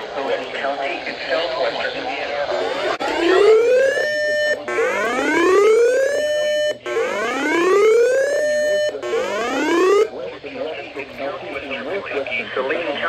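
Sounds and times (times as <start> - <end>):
rising whoop alert siren: 2.8 - 10.1.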